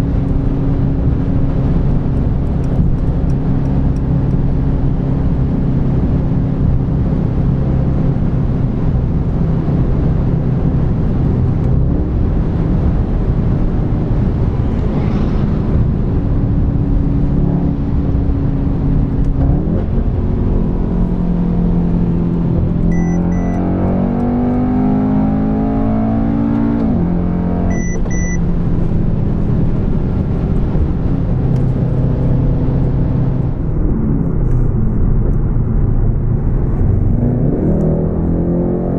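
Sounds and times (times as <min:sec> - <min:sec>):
car engine accelerating: 0:00.0 - 0:38.9
road noise inside car: 0:00.0 - 0:38.9
short double beep: 0:22.9 - 0:23.6, 0:27.7 - 0:28.4.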